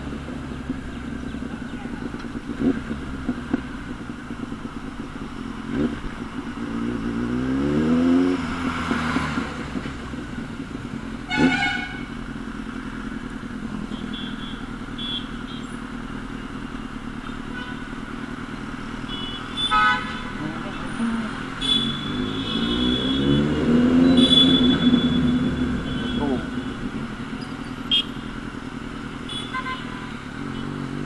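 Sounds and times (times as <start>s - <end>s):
motorcycle engine revving: 0.0s - 31.0s
vehicle horn honking: 11.3s - 12.2s, 13.9s - 15.8s, 17.5s - 17.9s, 19.0s - 27.0s, 27.8s - 28.3s, 29.2s - 30.8s.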